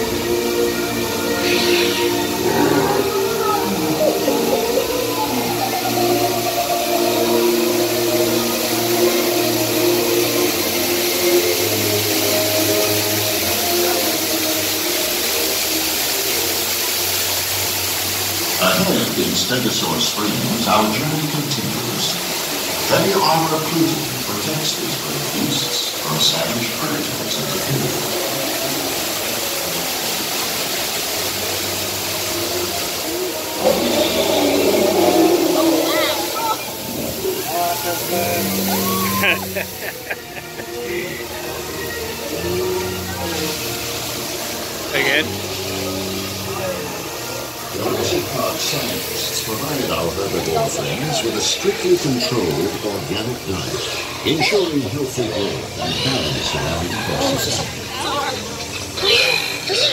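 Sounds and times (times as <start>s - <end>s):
rushing water of waterfall: 0.0s - 59.9s
people's voices: 1.3s - 8.2s, 18.5s - 28.4s, 33.6s - 59.9s.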